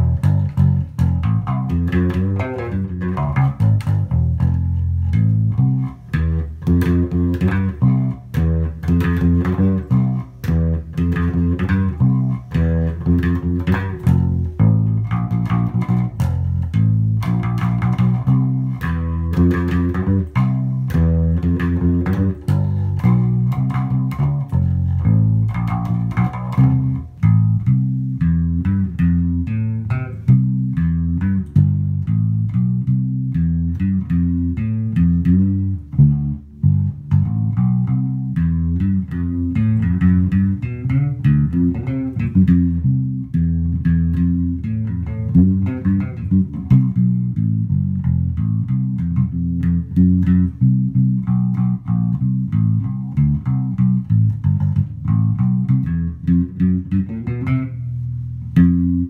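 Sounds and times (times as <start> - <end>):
electric bass guitar riffs: 0.0 - 59.0.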